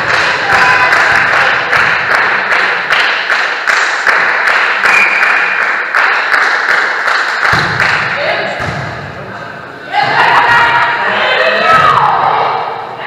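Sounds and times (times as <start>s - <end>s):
group clapping in rhythm: 0.0s - 8.6s.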